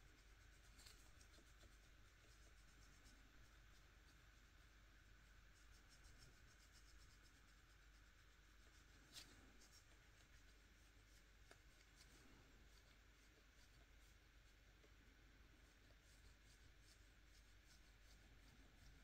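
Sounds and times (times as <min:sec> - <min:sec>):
sponge applicator rubbing on nail: 0:05.3 - 0:14.9, 0:15.5 - 0:19.0.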